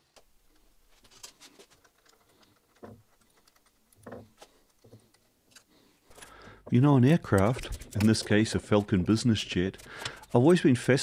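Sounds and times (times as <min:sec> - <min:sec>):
faint clicks and taps of parts: 0:00.1 - 0:08.9, 0:09.7 - 0:10.4.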